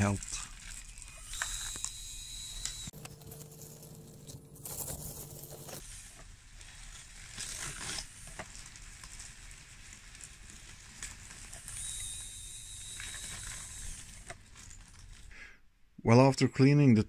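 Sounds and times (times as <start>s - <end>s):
electric motors whining: 0.0s - 5.8s, 11.0s - 15.2s
gravel crunching and scraping: 2.9s - 11.8s.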